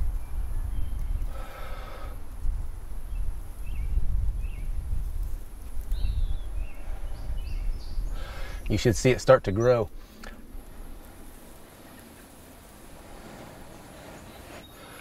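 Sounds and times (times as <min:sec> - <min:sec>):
person blowing breaths into tinder: 0:01.2 - 0:02.3, 0:08.1 - 0:08.6, 0:12.9 - 0:15.0
bird chirps: 0:05.9 - 0:08.8, 0:13.7 - 0:15.0.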